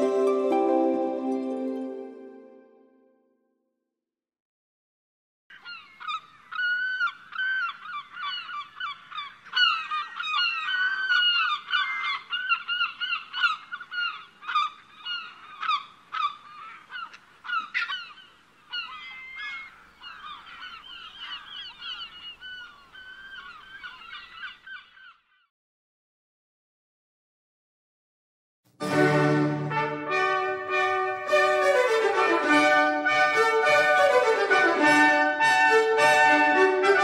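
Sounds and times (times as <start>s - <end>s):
flock of birds calling: 5.5s - 25.2s.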